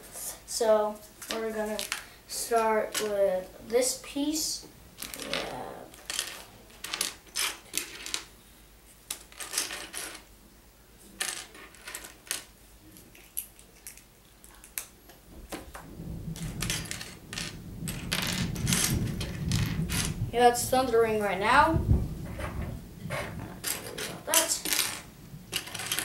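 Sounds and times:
plastic pieces clicking and clattering: 0:05.0 - 0:08.3, 0:09.1 - 0:10.2, 0:11.2 - 0:14.9, 0:16.4 - 0:20.2, 0:23.2 - 0:26.0
low rumble of thunder: 0:15.3 - 0:24.3, 0:25.0 - 0:25.6.

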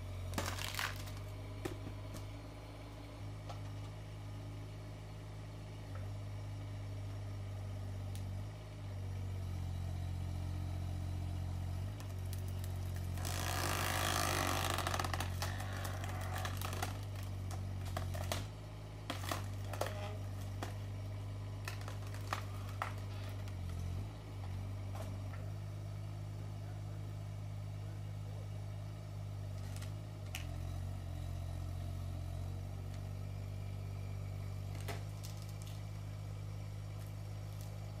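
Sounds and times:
diesel engine under load: 0:00.0 - 0:38.0
wood splitting cracks and knocks: 0:00.3 - 0:02.3, 0:11.9 - 0:21.0, 0:21.6 - 0:23.9, 0:29.6 - 0:30.6, 0:34.7 - 0:36.0.

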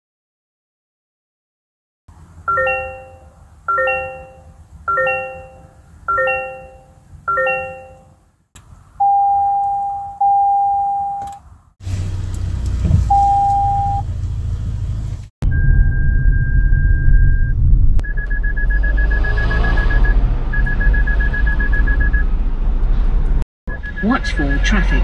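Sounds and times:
steady warning beep: 0:02.5 - 0:08.1, 0:09.0 - 0:11.3, 0:13.1 - 0:14.0, 0:15.5 - 0:22.3, 0:23.7 - 0:25.0
multi-tone ding chime: 0:02.5 - 0:08.2
low rumble: 0:12.0 - 0:24.6.

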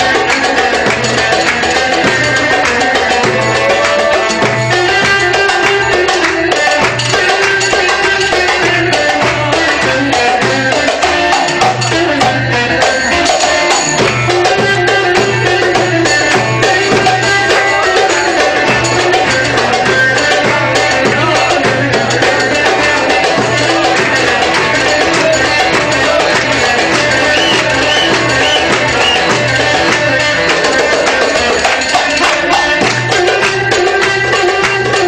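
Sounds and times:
electric saz melody: 0:00.0 - 0:35.0
hand drums and frame drum jingles: 0:00.0 - 0:35.0
clarinet melody: 0:26.9 - 0:29.9.

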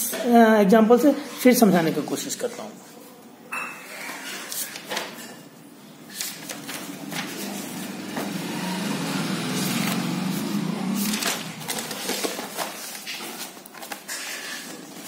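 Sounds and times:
notebook pages rustling: 0:04.2 - 0:05.2, 0:06.0 - 0:15.0
low hum: 0:06.3 - 0:12.1.

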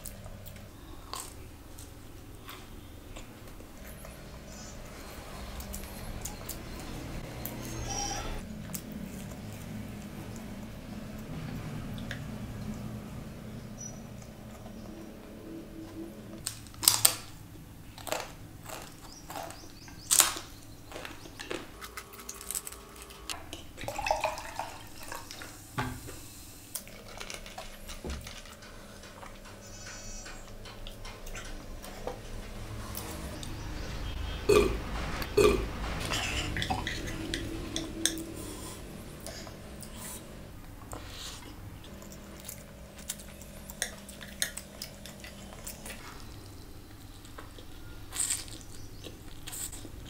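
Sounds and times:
chewing noodles: 0:18.0 - 0:25.5, 0:35.3 - 0:50.0
low throat sounds: 0:34.4 - 0:40.4.

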